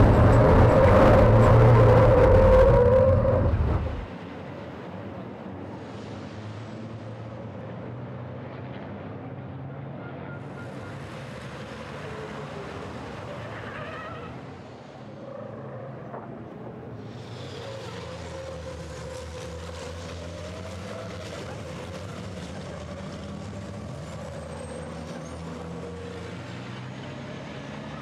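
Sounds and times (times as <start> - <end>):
short high whine: 0.0 - 4.1
race truck engines: 0.0 - 28.0.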